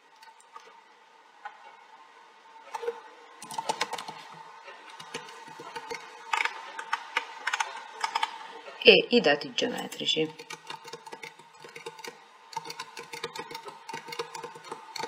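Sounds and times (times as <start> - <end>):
faint steady hum: 0.0 - 15.0
computer keyboard keystrokes: 3.4 - 4.2, 4.9 - 8.3, 10.3 - 15.0.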